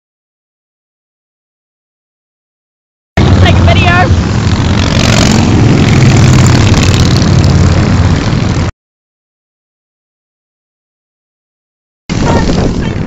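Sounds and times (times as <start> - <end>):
motorcycles passing: 3.2 - 8.7, 12.1 - 13.0.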